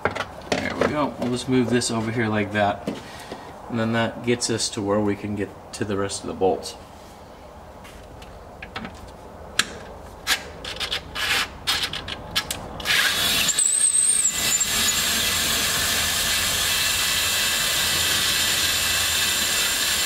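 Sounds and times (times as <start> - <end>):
parts clicking and knocking: 8.2 - 13.0
cordless power driver running: 14.3 - 20.0.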